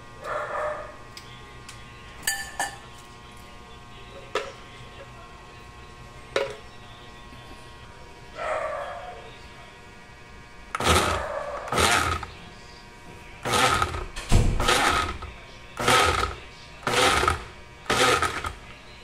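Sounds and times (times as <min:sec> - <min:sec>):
electric blender pulsing: 0:10.7 - 0:12.3, 0:13.4 - 0:18.6.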